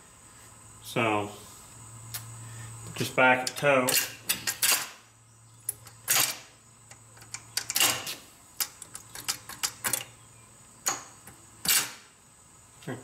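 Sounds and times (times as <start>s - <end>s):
metal transmission parts clicking: 5.7s - 10.1s.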